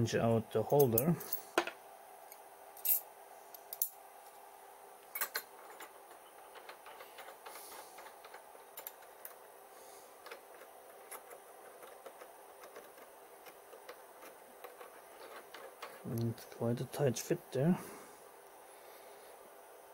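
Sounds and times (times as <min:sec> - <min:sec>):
faint hum: 0:00.0 - 0:19.9.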